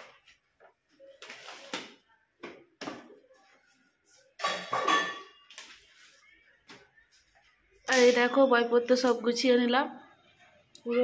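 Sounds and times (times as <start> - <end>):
paper rustling and shuffling: 0.0 - 2.0
books set on wooden shelf: 0.0 - 4.4, 5.4 - 7.8.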